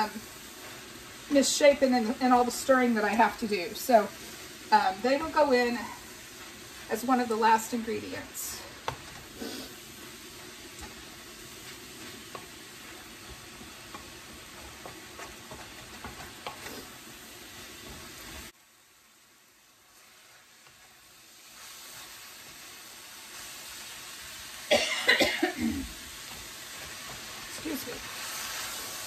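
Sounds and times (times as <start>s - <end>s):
wooden spatula scraping pan: 0.0s - 18.5s
food sizzling in a wok: 0.0s - 29.0s.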